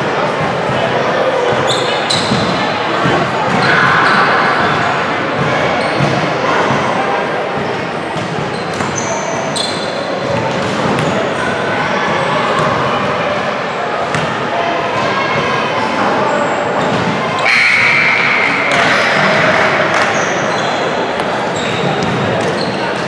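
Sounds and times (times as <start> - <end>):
crowd chatter echoing: 0.0 - 23.0
shoe squeaks: 1.6 - 2.6, 8.5 - 10.1, 20.1 - 23.0.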